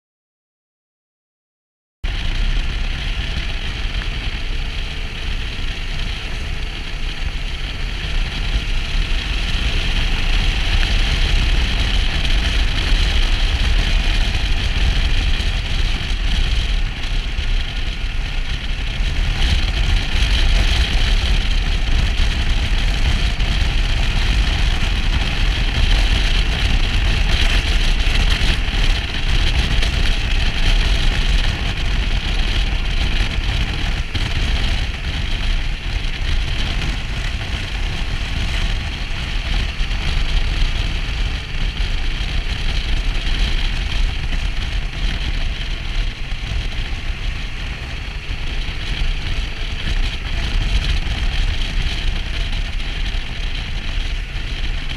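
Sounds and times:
wind noise on microphone: 2.0s - 54.9s
motorcycle engine cruising: 2.1s - 54.9s.

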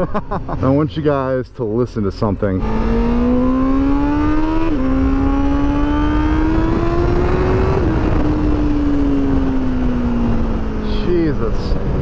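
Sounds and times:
motorcycle engine accelerating: 2.5s - 12.0s.

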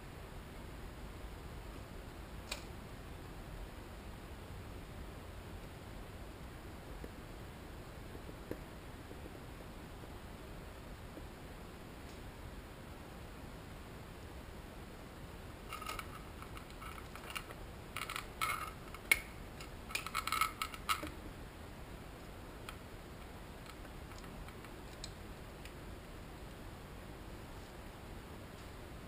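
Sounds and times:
faint steady hiss: 0.0s - 29.0s
metal parts clinking: 15.7s - 19.2s, 19.9s - 21.1s.

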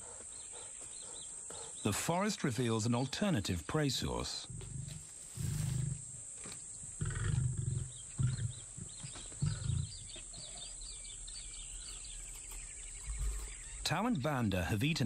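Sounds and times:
birds chirping: 0.0s - 15.0s
lions grunting: 4.4s - 14.8s.

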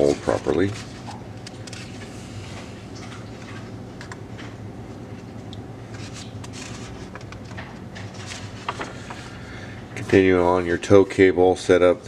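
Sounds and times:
paper pages rustling: 0.0s - 2.1s, 5.9s - 9.4s
steady low hum: 0.0s - 12.0s.

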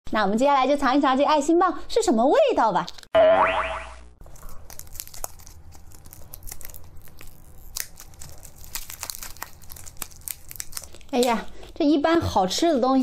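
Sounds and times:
plastic wrapper crinkling: 4.2s - 11.8s.

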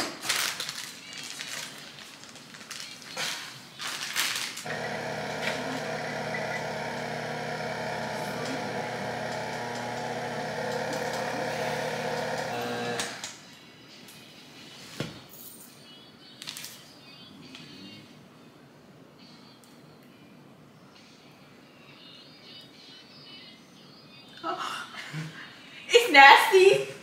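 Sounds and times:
stand mixer running: 4.7s - 13.2s.

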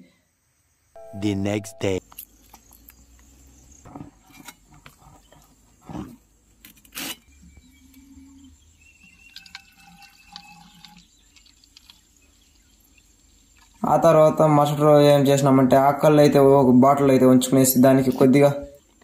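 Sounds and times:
liquid dripping into a bottle: 9.0s - 13.8s.

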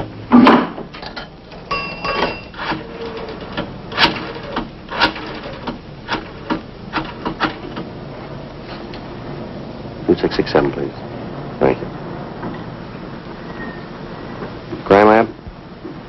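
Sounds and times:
payphone chime: 1.7s - 2.6s
coin dropping: 1.7s - 2.7s.

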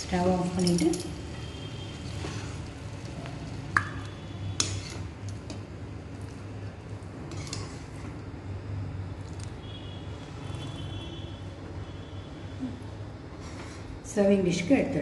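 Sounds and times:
spoon scraping metal pan: 4.6s - 5.1s, 7.3s - 7.9s.

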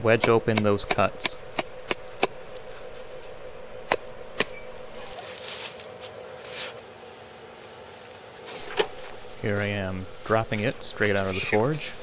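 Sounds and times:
hammer striking hot steel: 0.0s - 2.7s, 3.8s - 5.0s
soft rustling: 5.0s - 12.0s.

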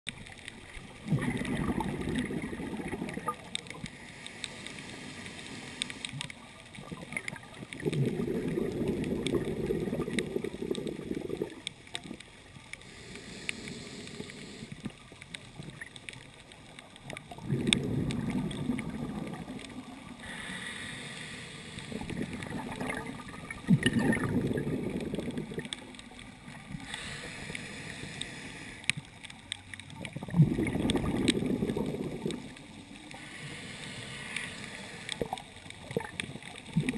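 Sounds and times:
bubbling exhalations underwater: 1.0s - 3.8s, 6.8s - 12.2s, 17.2s - 20.4s, 21.9s - 26.9s, 30.0s - 32.7s, 35.2s - 36.9s
regulator inhalation hiss: 3.9s - 6.2s, 12.8s - 14.9s, 20.2s - 22.1s, 26.7s - 28.9s, 33.1s - 35.4s.

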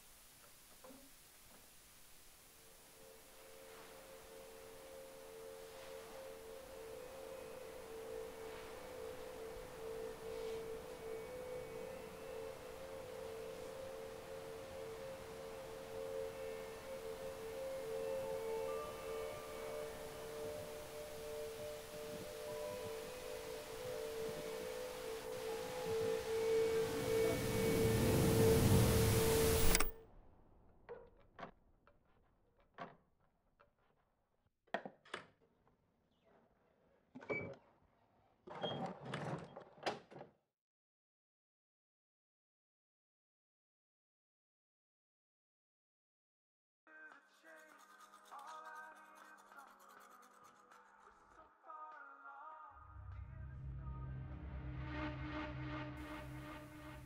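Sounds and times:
faint hiss: 0.0s - 29.9s
eerie electronic drone: 3.0s - 29.9s, 52.8s - 57.0s.

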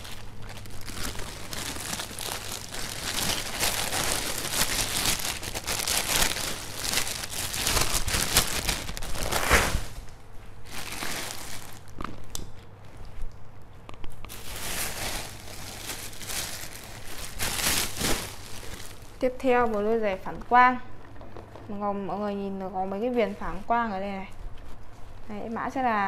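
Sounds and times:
plastic bag crinkling: 0.0s - 12.8s, 14.2s - 20.1s, 21.0s - 21.8s.

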